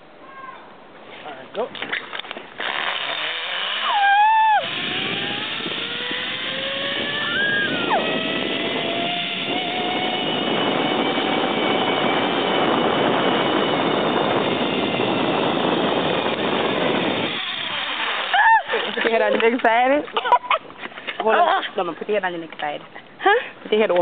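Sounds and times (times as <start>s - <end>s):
zip-line pulleys whirring on cable: 2.6s - 19.3s.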